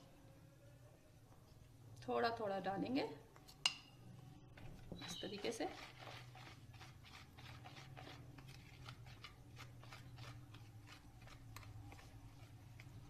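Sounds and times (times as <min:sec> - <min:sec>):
whisk scraping bowl: 0:05.0 - 0:13.0.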